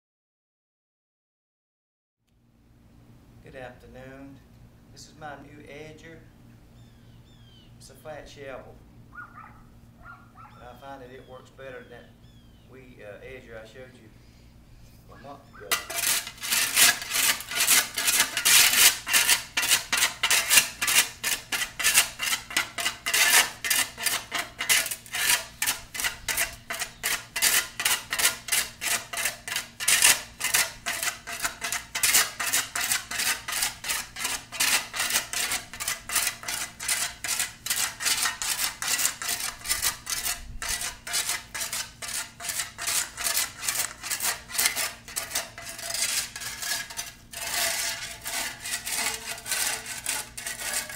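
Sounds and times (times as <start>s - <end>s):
shovel scraping concrete edge: 15.6s - 50.9s.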